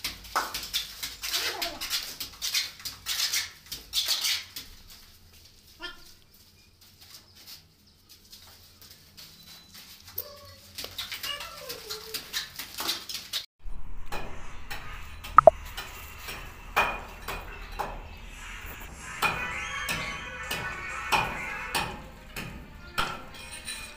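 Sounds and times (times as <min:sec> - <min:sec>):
mortar splatting on ceiling: 0:00.0 - 0:05.0.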